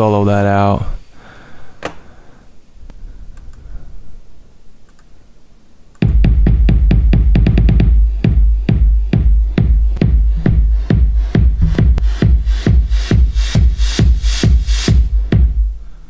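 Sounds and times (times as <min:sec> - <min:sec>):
electronic music with deep bass: 0:06.0 - 0:15.9.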